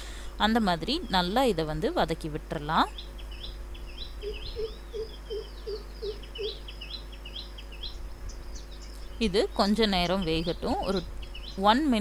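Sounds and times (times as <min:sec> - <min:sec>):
small birds chirping: 0:02.6 - 0:12.0
lower bird call: 0:02.9 - 0:09.2.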